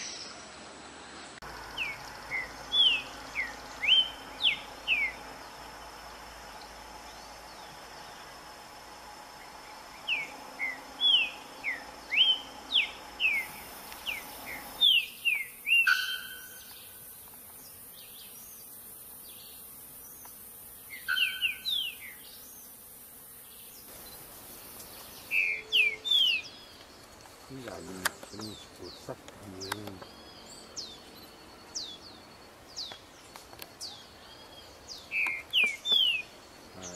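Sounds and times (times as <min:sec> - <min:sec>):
faint insect drone: 0:00.0 - 0:36.9
bird whistling song: 0:01.8 - 0:05.2, 0:10.1 - 0:16.8, 0:20.9 - 0:22.2, 0:25.2 - 0:26.6, 0:34.9 - 0:36.3.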